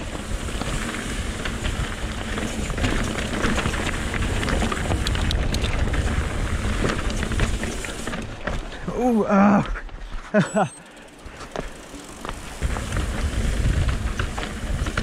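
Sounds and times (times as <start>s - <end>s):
bike tyres clicking on rocks: 0.0s - 15.0s
wind rushing over microphone: 12.6s - 15.0s.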